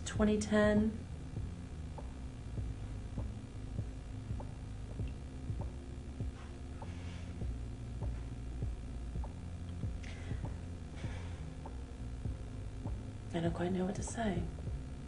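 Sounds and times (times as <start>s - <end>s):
low steady hum: 0.0s - 15.0s
soft breaths: 6.4s - 7.6s, 10.0s - 11.7s.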